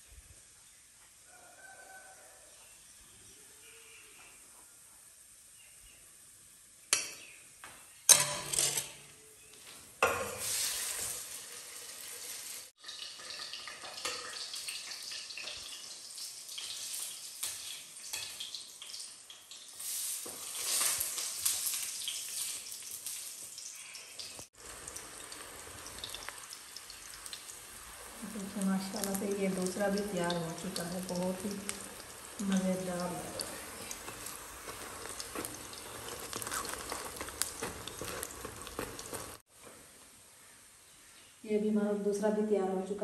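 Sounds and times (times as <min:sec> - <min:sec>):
metal spoon clinking on pan: 0:08.1 - 0:09.0
flatbread sizzling in hot oil: 0:09.6 - 0:39.5.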